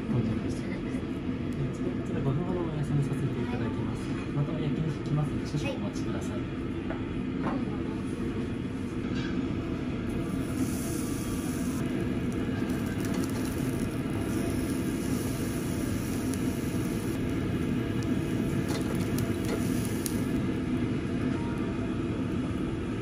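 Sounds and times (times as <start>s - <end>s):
meat crackling over charcoal: 10.1s - 20.6s.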